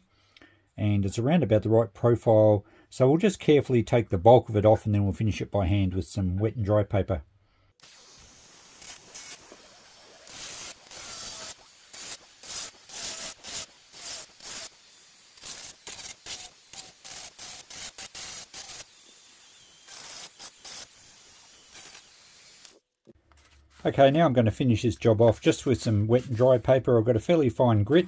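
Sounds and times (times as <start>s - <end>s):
high motor whine: 7.8s - 22.7s
rotary tool sanding epoxy: 7.8s - 22.8s, 23.4s - 26.8s.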